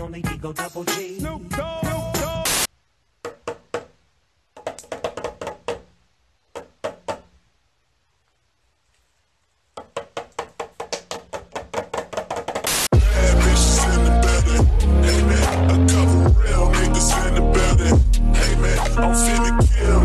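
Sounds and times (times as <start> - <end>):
toy drum struck with sticks: 9.8 - 12.9.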